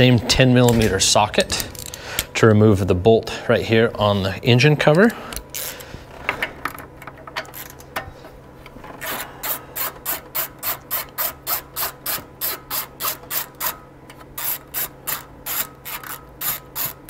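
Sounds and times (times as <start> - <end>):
ratchet clicking: 5.4 - 5.8, 7.3 - 7.8, 9.0 - 17.0.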